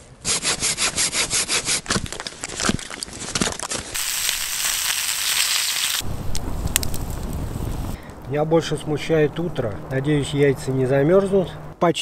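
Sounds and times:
dry wood cracking and snapping: 0:01.8 - 0:08.3
frying pan sizzling: 0:04.0 - 0:08.0.

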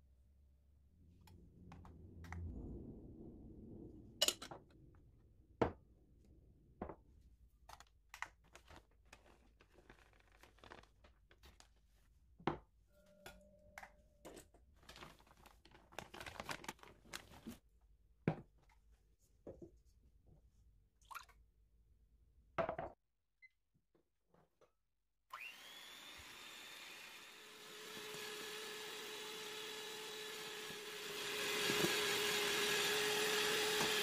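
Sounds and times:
muffled rumble: 0:01.1 - 0:06.8
plastic bag crinkling: 0:08.5 - 0:11.7, 0:14.8 - 0:17.6.

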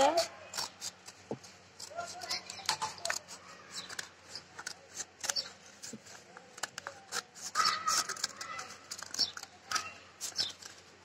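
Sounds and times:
scissors snipping paper: 0:00.0 - 0:11.0.

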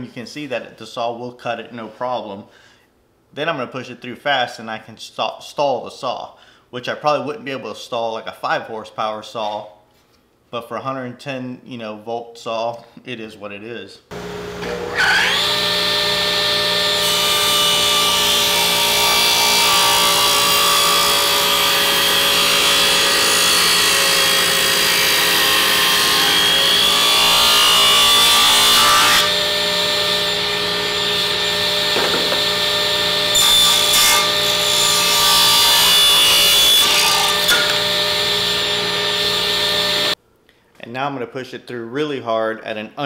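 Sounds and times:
table saw motor whining: 0:14.1 - 0:40.2
saw blade cutting wood: 0:14.6 - 0:40.2.

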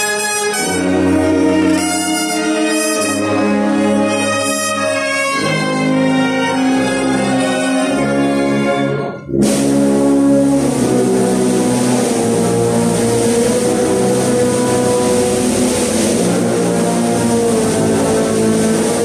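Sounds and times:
brass band playing funeral march: 0:00.0 - 0:19.0
steady hiss: 0:09.4 - 0:19.0.

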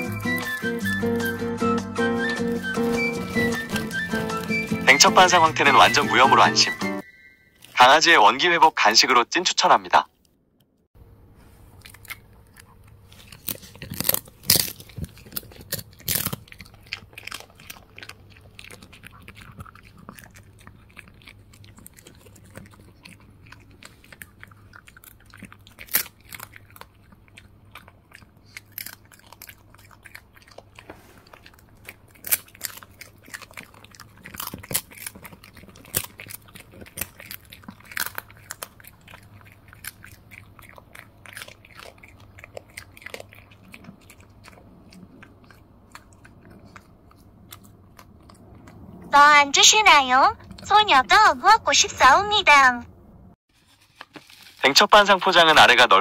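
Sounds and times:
dog chewing crunchy treat: 0:00.0 - 0:06.8, 0:11.6 - 0:49.1.

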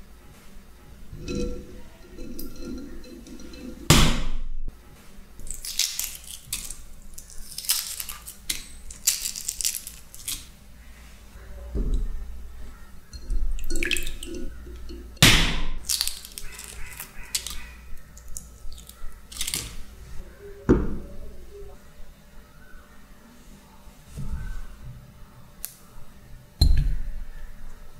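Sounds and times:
eggshells crackling and crunching: 0:05.4 - 0:10.6, 0:13.7 - 0:19.9
water sloshing in a bowl: 0:13.2 - 0:15.2.

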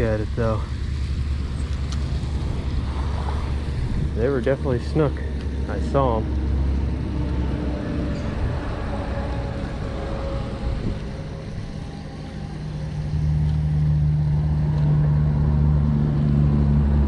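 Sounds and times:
motor engine droning: 0:00.0 - 0:17.0.

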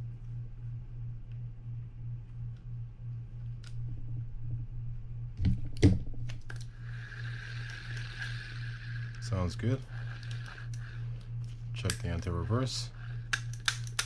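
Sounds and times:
fishing reel cranking whir: 0:06.6 - 0:14.0.

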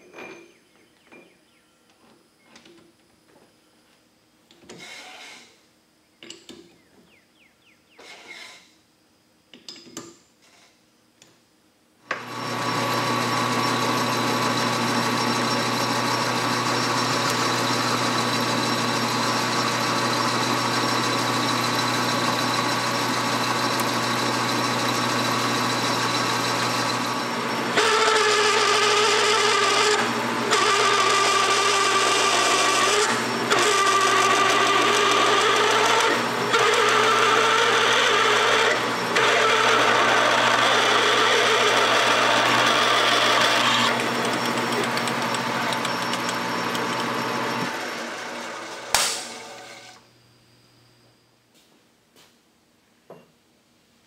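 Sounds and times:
drill boring into metal: 0:12.1 - 0:50.0
metal lathe gear whine: 0:12.2 - 0:51.2.

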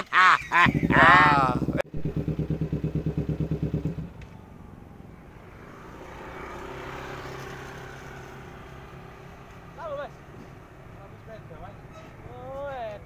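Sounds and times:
motorcycle engine pulsing: 0:00.5 - 0:04.8.

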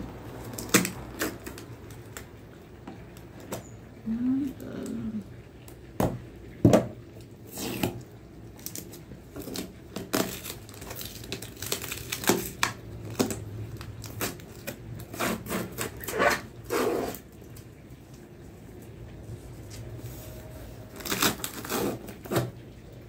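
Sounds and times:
packing tape ripping off cardboard: 0:00.5 - 0:02.2, 0:07.5 - 0:08.0, 0:08.6 - 0:17.2, 0:20.9 - 0:22.6.

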